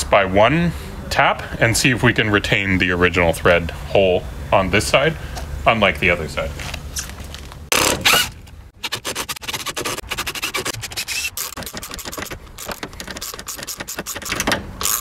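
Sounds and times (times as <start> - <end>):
drill grinding out bolt: 7.7 - 15.0.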